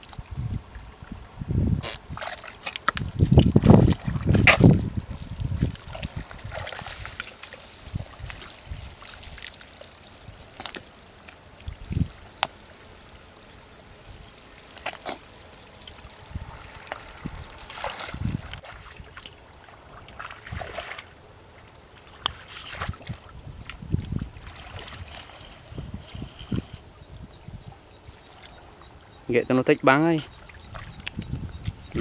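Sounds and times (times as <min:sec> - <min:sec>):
feet wading through muddy water: 0:01.8 - 0:26.9, 0:30.3 - 0:32.0.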